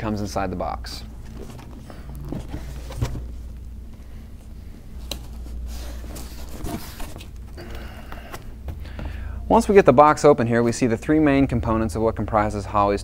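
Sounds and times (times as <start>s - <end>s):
low steady hum: 0.0s - 13.0s
cardboard box rustling: 1.1s - 3.6s, 5.0s - 7.4s.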